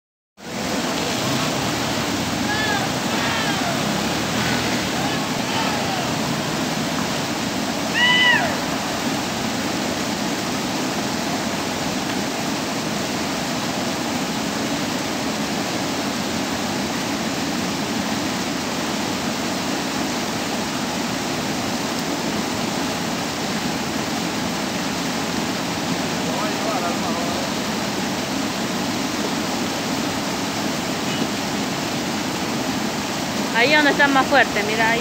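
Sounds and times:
floodwater rushing over ford: 0:00.4 - 0:35.0
brief falling cry: 0:02.4 - 0:06.4, 0:07.9 - 0:08.9.

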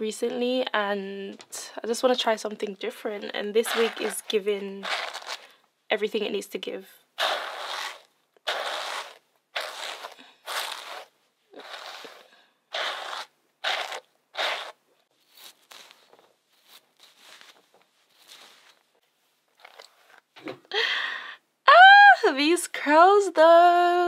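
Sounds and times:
brush strokes through hair: 0:07.4 - 0:19.2.

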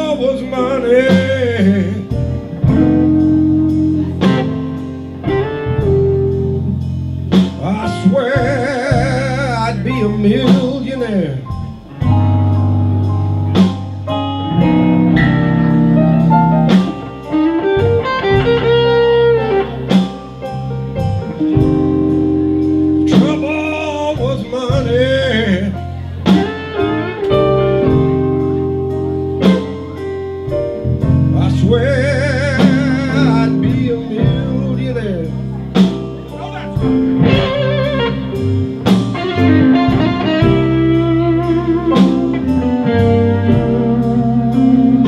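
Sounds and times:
man singing with vibrato: 0:00.0 - 0:03.0, 0:07.4 - 0:11.8, 0:23.0 - 0:26.3, 0:31.2 - 0:35.7
electric guitar: 0:00.0 - 0:45.0
low bass line: 0:00.0 - 0:45.0
sharp drum beats: 0:01.1 - 0:09.6, 0:11.5 - 0:25.6, 0:35.8 - 0:44.6.

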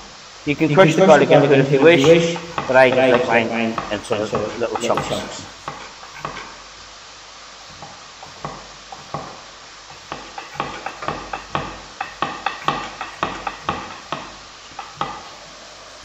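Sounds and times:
knife chopping on wooden board: 0:02.0 - 0:06.5, 0:07.7 - 0:15.3.

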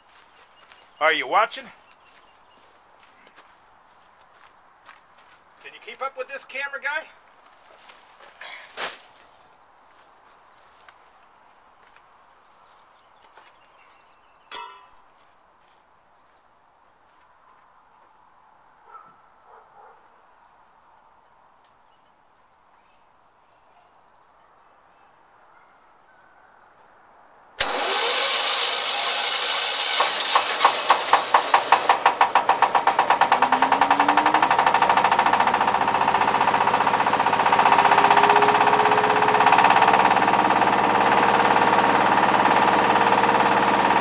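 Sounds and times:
stationary engine chugging: 0:27.6 - 0:44.0.

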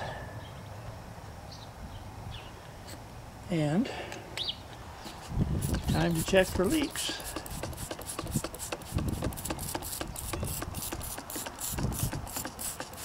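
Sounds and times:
spray bottle spritzing: 0:05.6 - 0:13.0.

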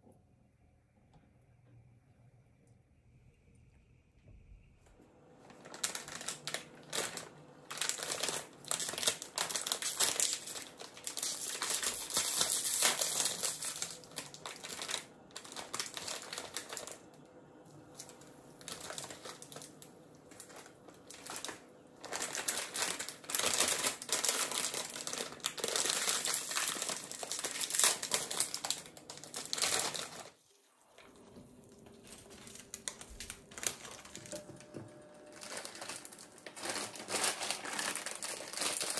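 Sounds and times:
plastic packets crinkling: 0:05.3 - 0:30.4, 0:31.0 - 0:38.9.

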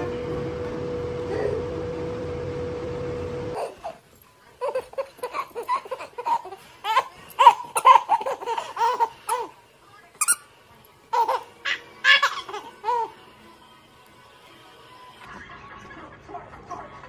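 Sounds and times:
baby giggling: 0:03.6 - 0:04.0, 0:04.6 - 0:09.5, 0:11.1 - 0:13.2.

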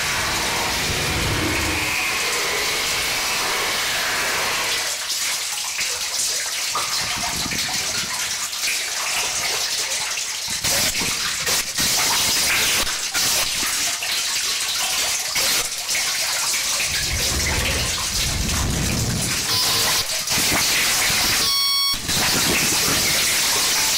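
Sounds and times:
harsh static noise: 0:00.0 - 0:02.7, 0:16.8 - 0:23.4.

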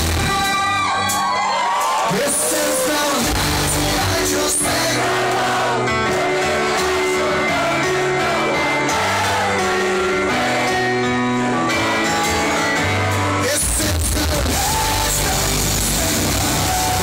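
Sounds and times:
drums: 0:00.0 - 0:05.2, 0:12.1 - 0:17.0
held guitar and keyboard chords: 0:00.0 - 0:17.0.

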